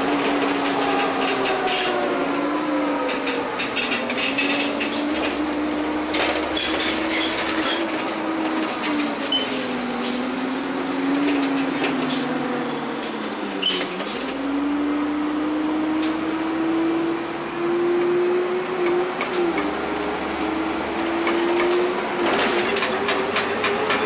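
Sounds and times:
bus engine whine: 0.0 - 24.0
bus body rattles: 3.2 - 10.3, 20.9 - 24.0.

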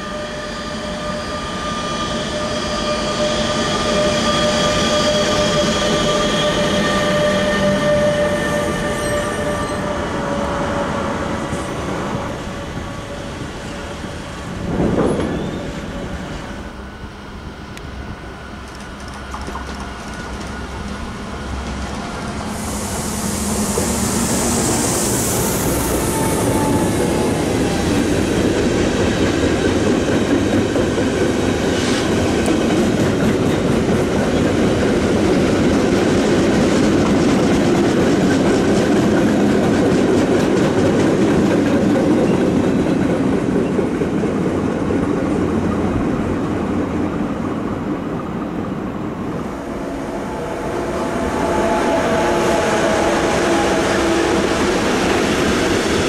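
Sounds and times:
freight train wheels rumbling: 0.0 - 56.0
high hiss: 21.2 - 29.0.

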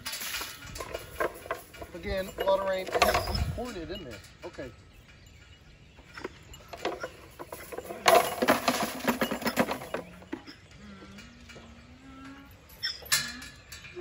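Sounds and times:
loud rattling clatter: 6.7 - 10.4.

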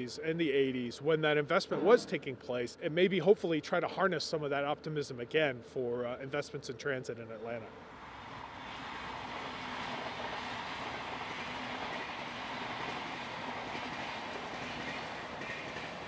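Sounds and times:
train wheels on track: 7.9 - 16.0.

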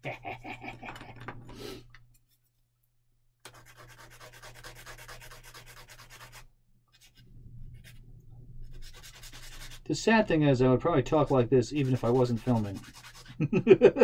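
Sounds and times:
sanding stick rubbing plastic: 3.5 - 7.2, 8.6 - 9.8, 11.1 - 13.4.

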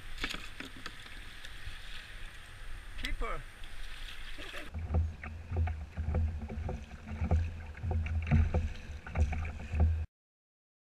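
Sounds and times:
water slapping against kayak hull: 3.0 - 10.1.

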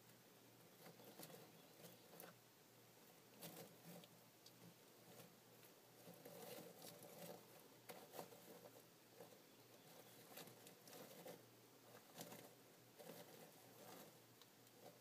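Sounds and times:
low steady hum: 0.0 - 15.0
mulch chips clicking and rustling: 3.3 - 15.0.

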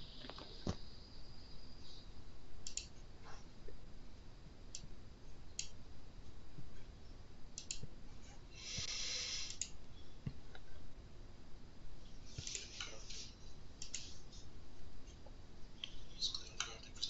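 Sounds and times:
mouse and keyboard clicks: 2.6 - 3.0, 7.6 - 7.9
burst of hiss: 8.6 - 9.6.

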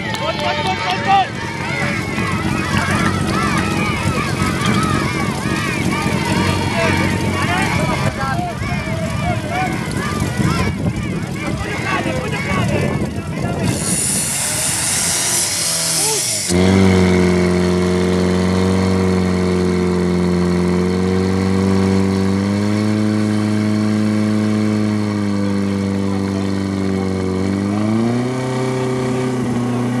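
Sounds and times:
pump engine running at high revs: 0.0 - 30.0
loud hiss: 13.7 - 16.8.

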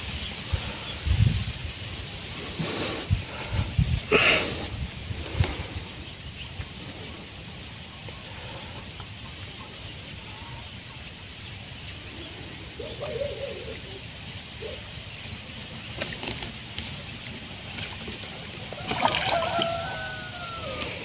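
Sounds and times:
wind rumble on microphone: 0.0 - 7.4.

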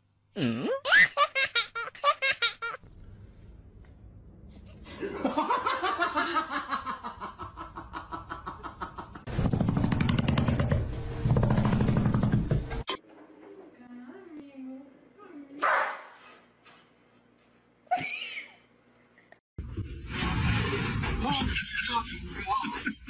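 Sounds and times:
people laughing: 4.9 - 9.3, 21.2 - 23.0.

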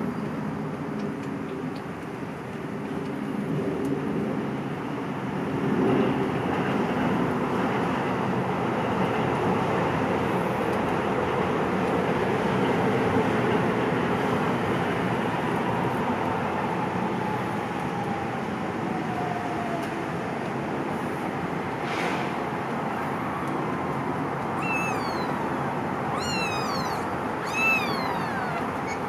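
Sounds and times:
steady background noise: 0.0 - 29.0
kittens mewing: 24.5 - 29.0.

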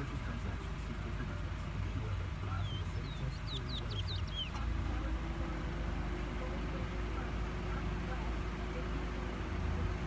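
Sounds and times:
low background rumble: 0.0 - 10.0
finch chirping: 2.4 - 4.7.

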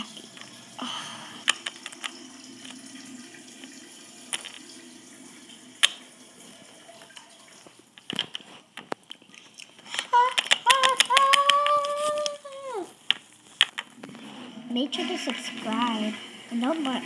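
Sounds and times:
plastic toys tapping on wood: 1.4 - 2.1, 9.9 - 14.0.

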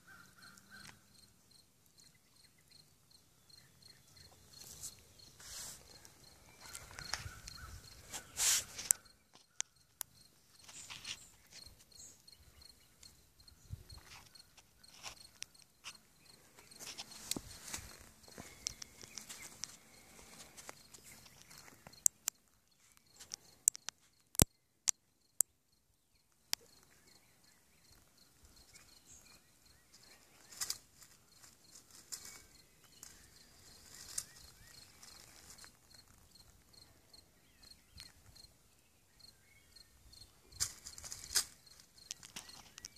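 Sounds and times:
insect chirping: 0.0 - 42.9
dry leaves rustling: 4.6 - 8.9, 30.2 - 36.2
sharp clicks: 21.3 - 25.5.

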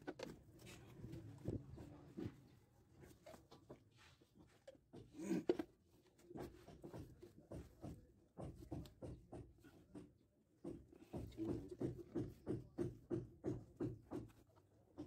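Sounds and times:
brush scraping on plastic: 0.0 - 9.9
plastic fittings knocking: 4.6 - 15.0.

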